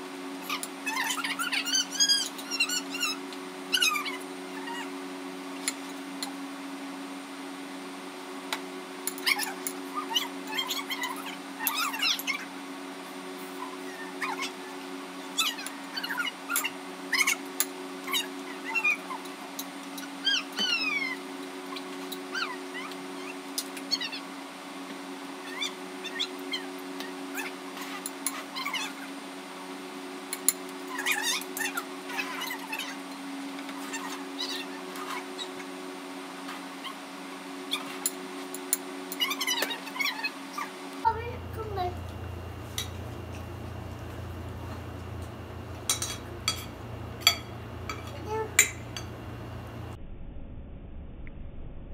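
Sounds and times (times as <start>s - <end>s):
steady low hum: 0.0s - 51.9s
low hum: 41.0s - 51.9s
spoons clinking against bowls: 42.7s - 43.0s, 45.8s - 49.2s.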